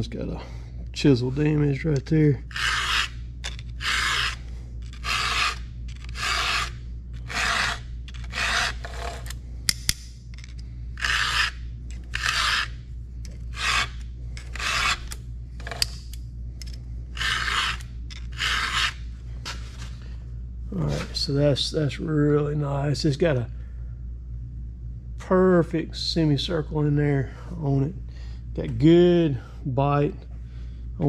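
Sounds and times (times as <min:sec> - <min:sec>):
file rasping on chainsaw chain: 0:02.5 - 0:09.3, 0:11.0 - 0:12.7, 0:13.5 - 0:15.1, 0:17.2 - 0:19.0.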